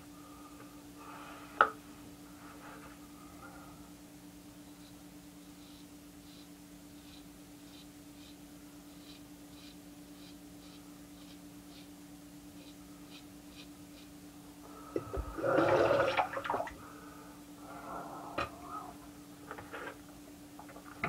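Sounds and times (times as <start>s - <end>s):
low hum: 10.7s - 21.0s.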